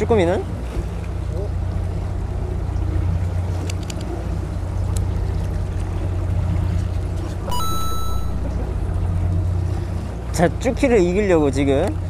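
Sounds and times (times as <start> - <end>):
boat engine droning: 0.0 - 12.0
steady high tone: 7.5 - 8.6.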